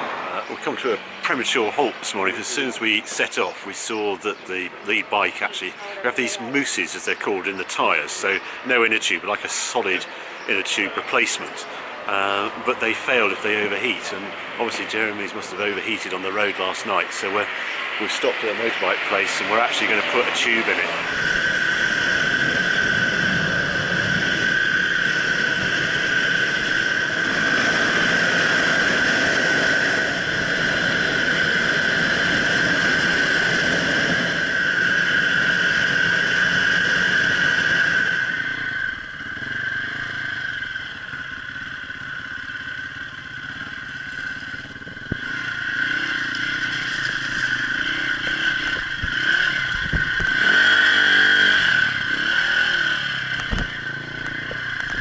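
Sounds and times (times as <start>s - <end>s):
high-pitched whine: 0.0s - 55.0s
motorcycle engine running: 17.5s - 55.0s.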